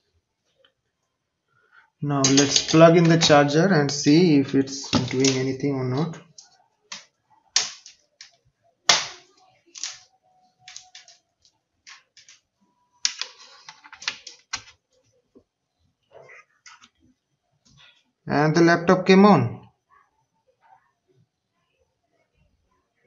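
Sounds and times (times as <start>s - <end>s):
hands clicking on laptop: 4.8s - 7.0s, 13.1s - 14.8s.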